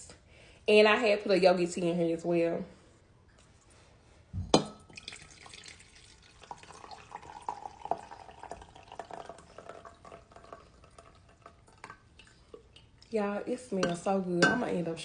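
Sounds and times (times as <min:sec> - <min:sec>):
tea pouring into a mug: 0:04.9 - 0:13.1.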